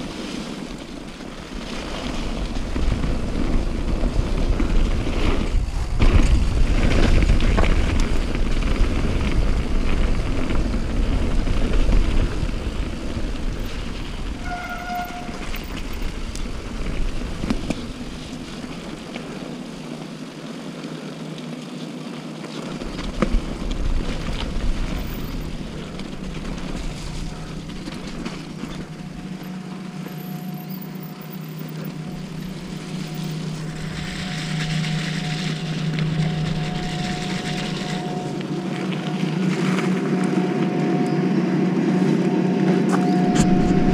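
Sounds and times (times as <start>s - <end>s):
engine droning: 0.0s - 43.9s
higher steady tone: 25.0s - 43.9s.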